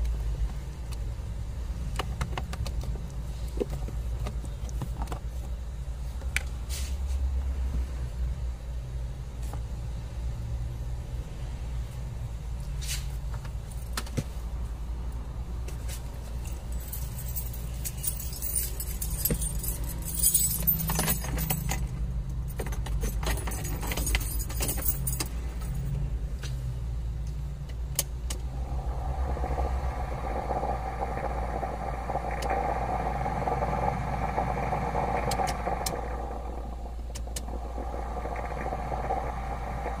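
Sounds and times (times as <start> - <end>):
steady low hum: 0.0 - 40.0
handling clicks and rustling: 15.7 - 25.8
blower fan whirring: 26.9 - 40.0.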